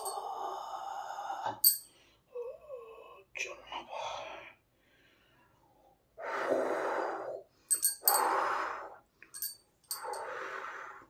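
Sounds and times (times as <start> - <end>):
bangles clinking: 0.0 - 0.3, 1.6 - 2.0, 7.7 - 8.4, 9.3 - 10.3.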